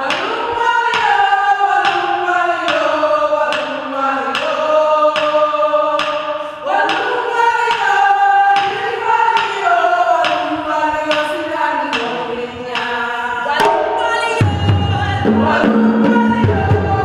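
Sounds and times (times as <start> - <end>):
group singing long notes: 0.0 - 17.0
hand drums beating: 13.5 - 17.0.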